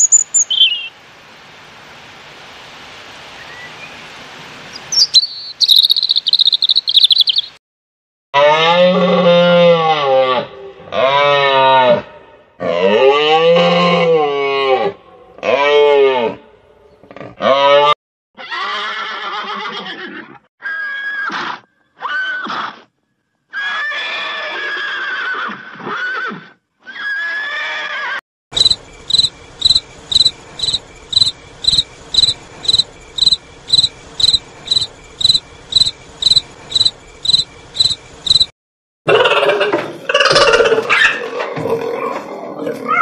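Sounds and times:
cricket chirping: 0.0s - 0.8s, 4.7s - 7.6s, 28.6s - 38.5s
horse whinnying: 18.4s - 21.3s, 23.5s - 28.2s.

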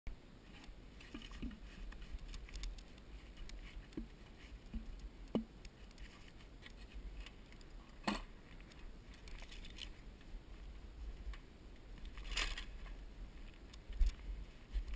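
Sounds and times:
gear clicking against tree trunk: 0.6s - 10.0s, 11.8s - 14.9s
wind rumble on microphone: 9.7s - 14.9s.

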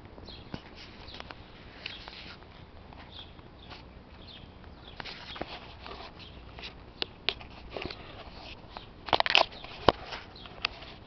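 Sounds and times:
camera handling clicks and rustles: 5.0s - 11.0s.

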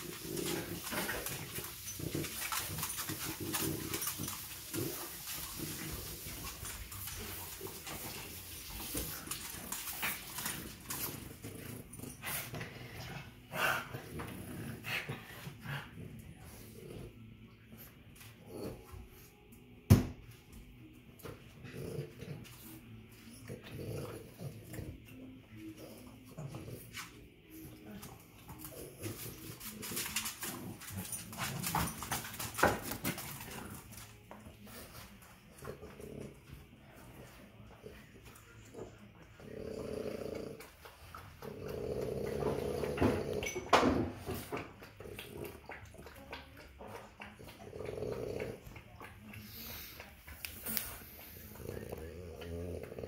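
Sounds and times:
dogs making rough play sounds: 0.0s - 19.7s, 20.5s - 53.0s
scuffling and claws on hard floor: 26.5s - 36.2s.

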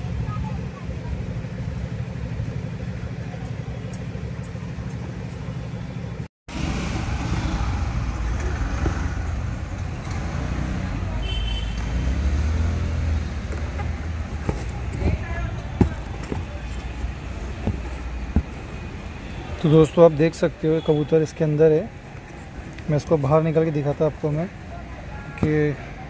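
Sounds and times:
engine idling: 0.0s - 6.3s
street traffic noise: 0.0s - 26.0s.

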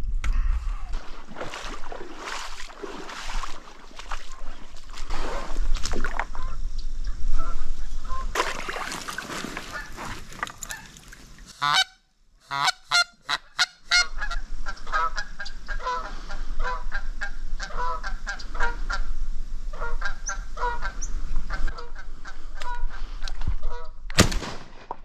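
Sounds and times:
goose honking: 9.7s - 19.0s, 19.7s - 24.0s.

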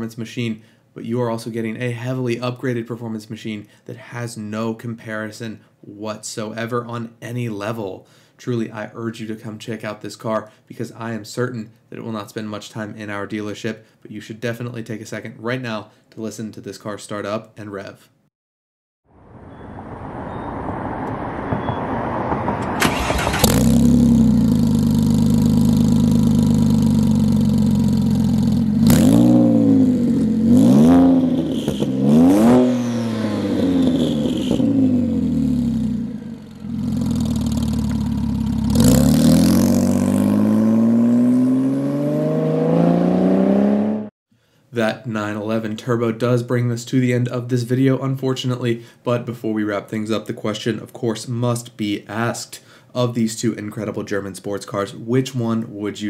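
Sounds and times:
car engine starting and revving: 19.2s - 44.1s.

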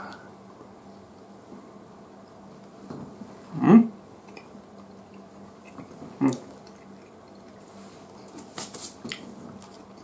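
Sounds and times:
people chewing: 4.2s - 10.0s.

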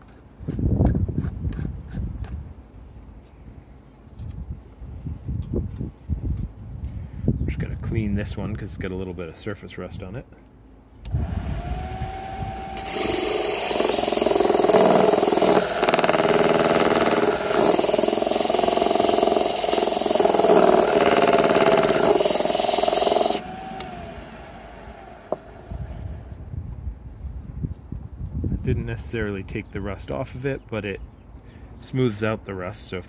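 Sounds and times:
grinder motor humming: 11.1s - 26.3s
shell grinding on disc: 12.6s - 24.2s.

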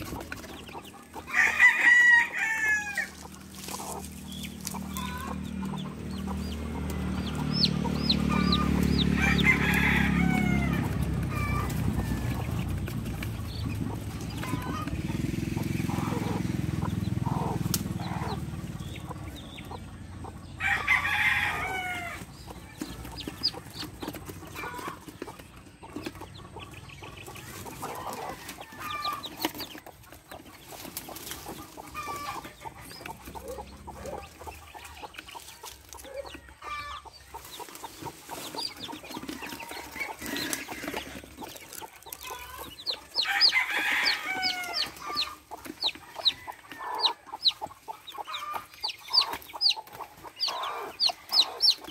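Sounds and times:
chicken clucking loudly: 0.0s - 51.9s
chicks peeping: 0.0s - 51.9s
dry leaves rustling: 1.3s - 15.8s, 30.4s - 32.7s, 34.3s - 46.2s.

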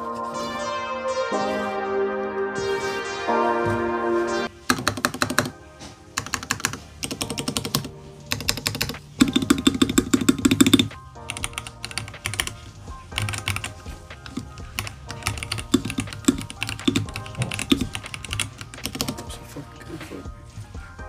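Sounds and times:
mechanical keyboard typing: 4.6s - 5.6s, 6.2s - 12.6s, 13.2s - 19.2s.

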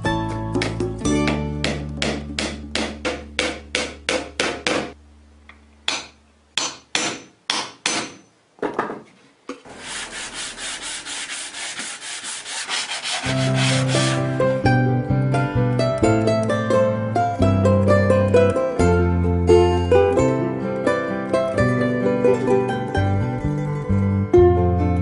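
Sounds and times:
plucked-string music: 0.0s - 3.4s, 13.2s - 25.0s
sandpaper rasping on wood: 9.7s - 14.3s.

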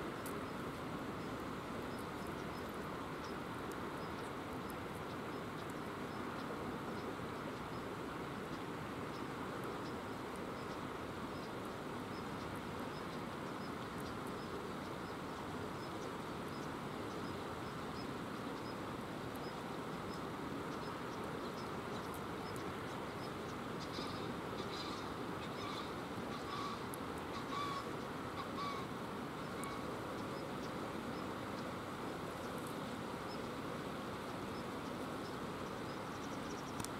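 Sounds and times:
flowing river water: 0.0s - 36.9s
harsh bird calls: 23.8s - 29.9s.

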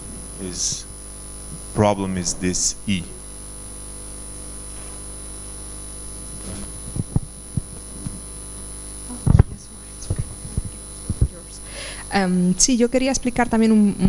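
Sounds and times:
electrical mains hum: 0.0s - 14.0s
microphone bump: 6.2s - 8.3s, 9.1s - 11.4s
microphone handling knocks: 6.3s - 8.2s, 9.2s - 11.4s.

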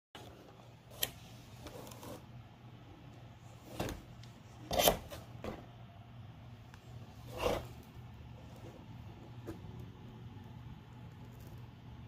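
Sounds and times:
cardboard rubbing and scraping: 1.5s - 2.3s, 7.2s - 7.8s.

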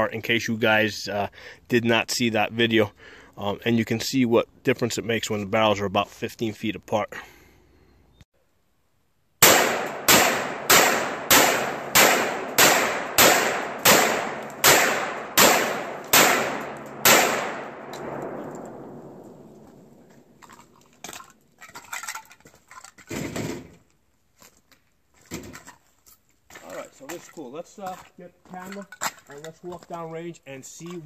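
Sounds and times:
rifle shots: 9.4s - 20.1s.

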